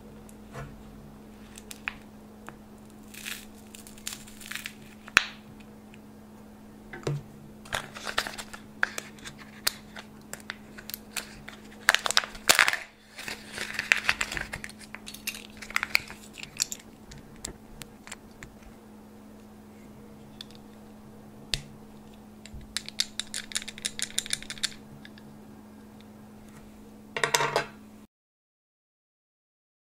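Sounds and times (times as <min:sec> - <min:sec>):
steady low hum: 0:00.0 - 0:28.1
foil and paper wrapping crinkling: 0:02.9 - 0:05.2, 0:07.7 - 0:16.8
plastic parts clicking: 0:22.4 - 0:25.2.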